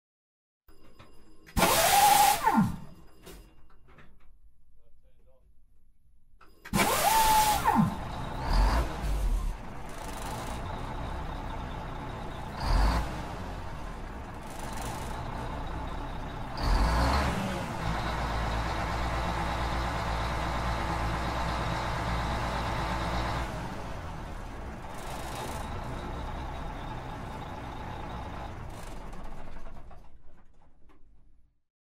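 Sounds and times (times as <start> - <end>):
diesel truck engine starting and revving: 1.6 - 2.8, 6.7 - 30.7
engine whine: 6.7 - 30.0.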